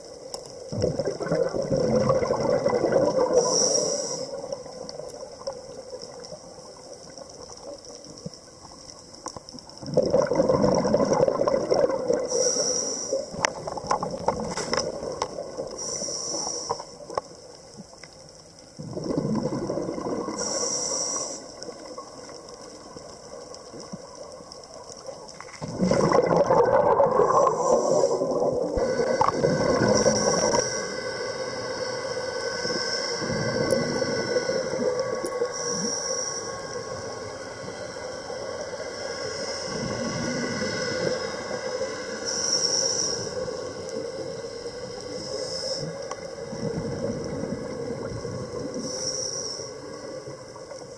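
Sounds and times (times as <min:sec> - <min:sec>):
exhaled bubbles gurgling underwater: 0:00.0 - 0:50.9
regulator inhalation hiss: 0:03.2 - 0:05.0, 0:12.1 - 0:13.5, 0:15.4 - 0:17.5, 0:20.2 - 0:22.8, 0:27.1 - 0:47.1, 0:48.4 - 0:50.7.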